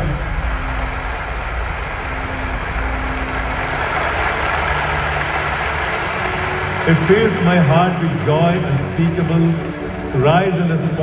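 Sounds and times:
low rumble: 0.0s - 4.4s
crowd applause over loudspeakers: 0.0s - 11.0s.

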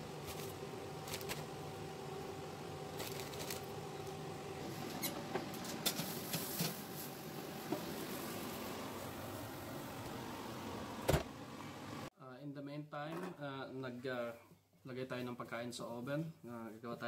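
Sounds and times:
steady hum: 0.0s - 12.1s.

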